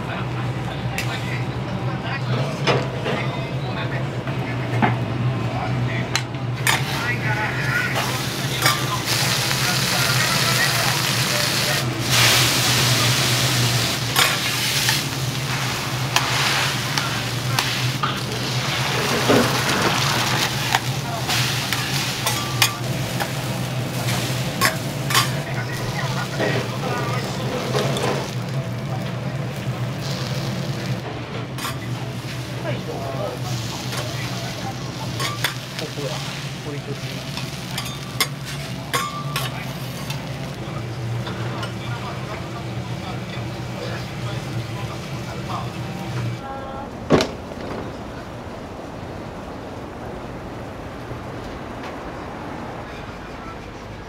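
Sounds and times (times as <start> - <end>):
food sizzling on griddle: 6.7 - 46.4.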